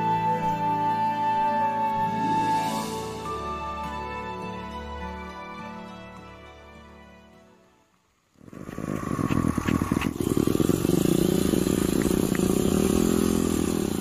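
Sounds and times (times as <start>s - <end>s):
motorcycle engine running: 8.4s - 14.0s.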